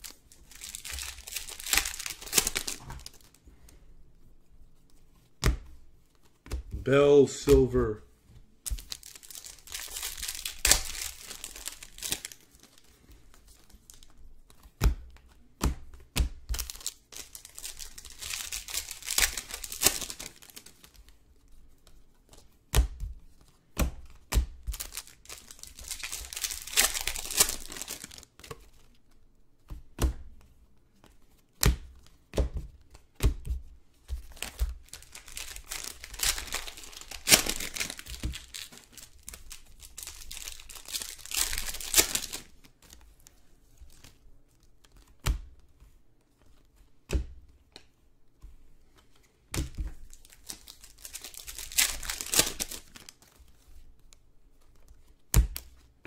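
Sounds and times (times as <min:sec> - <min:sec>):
plastic wrappers crinkling: 0:00.0 - 0:03.7, 0:08.6 - 0:14.2, 0:16.5 - 0:21.2, 0:24.7 - 0:28.4, 0:34.2 - 0:43.1, 0:49.9 - 0:53.8.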